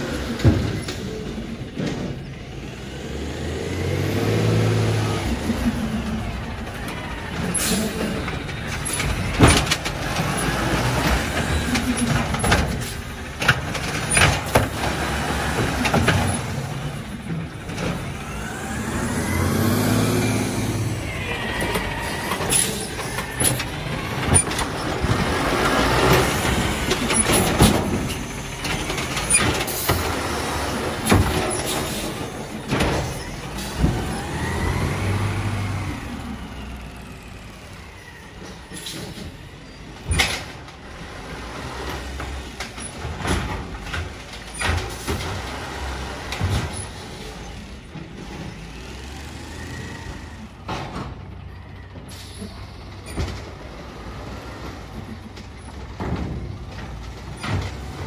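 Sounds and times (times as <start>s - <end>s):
carts knocking and clattering: 0.0s - 2.8s, 4.6s - 49.2s, 50.2s - 58.0s
garbage truck engine revving: 0.0s - 58.0s
air brake hiss: 52.1s - 52.6s.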